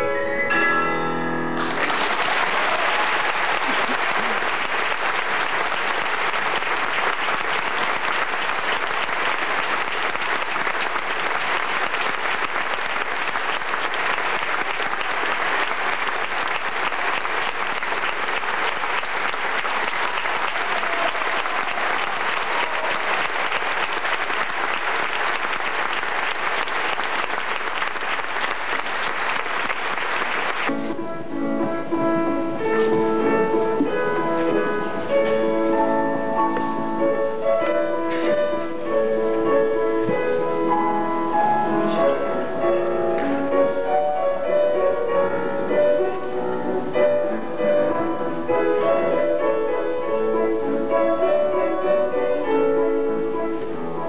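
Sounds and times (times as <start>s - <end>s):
music: 0.0s - 24.4s, 30.6s - 54.0s
audience applauding: 1.6s - 30.8s.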